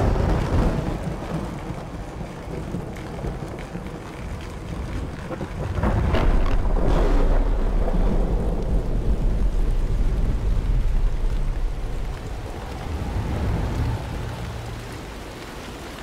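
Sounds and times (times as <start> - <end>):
deep noisy rumble: 4.3 - 15.7.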